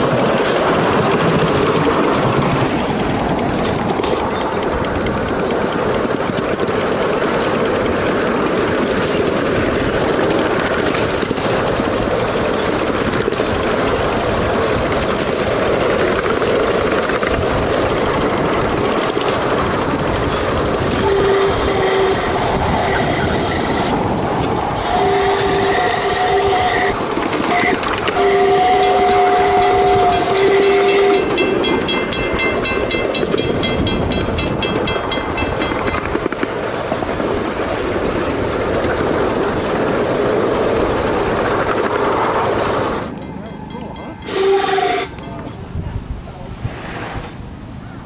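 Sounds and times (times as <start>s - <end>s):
miniature train running on track: 0.0s - 46.6s
train horn blasts: 20.8s - 24.0s, 24.8s - 31.9s, 43.2s - 45.5s
crossing signal bell ringing: 28.2s - 36.1s, 43.0s - 45.8s.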